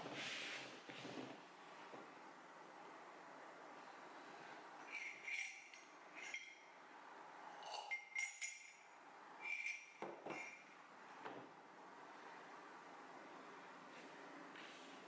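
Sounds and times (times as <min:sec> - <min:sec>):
metal spoon clinking in ceramic mug: 0:04.8 - 0:06.8, 0:07.5 - 0:10.7.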